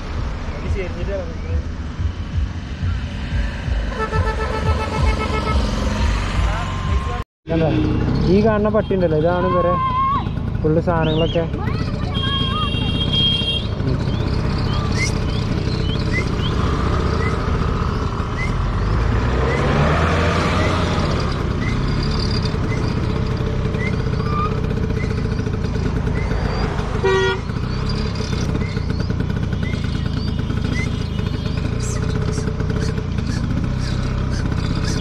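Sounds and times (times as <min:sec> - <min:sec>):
scooter engine rumbling: 0:00.0 - 0:35.0
vehicle passing: 0:00.0 - 0:35.0
horn toot: 0:03.8 - 0:06.1, 0:12.0 - 0:14.0, 0:26.9 - 0:28.1.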